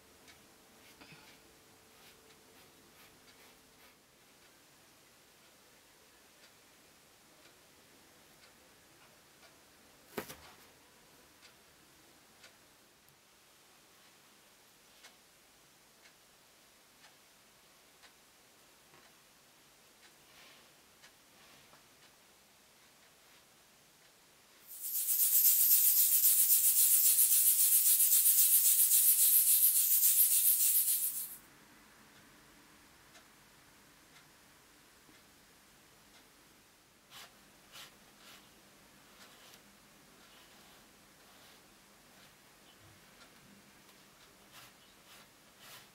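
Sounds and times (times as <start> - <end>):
clock ticking faintly: 0.0 - 30.7, 32.1 - 45.9
toothbrush scrubbing wire mesh: 24.7 - 31.4, 44.5 - 45.9.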